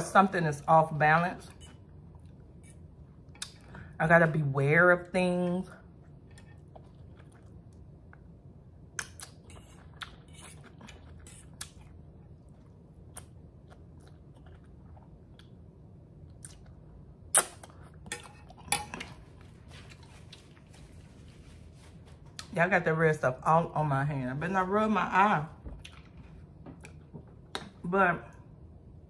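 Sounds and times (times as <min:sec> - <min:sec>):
close chewing of noodles: 0:05.9 - 0:08.3, 0:09.0 - 0:20.7.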